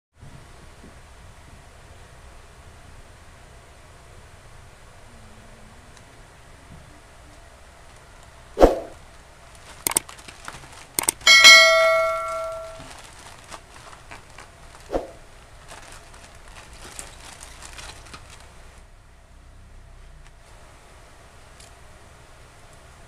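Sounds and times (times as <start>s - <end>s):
sharp clicks: 9.8s - 10.1s, 11.0s - 11.2s
bell-like ding: 11.3s - 12.9s.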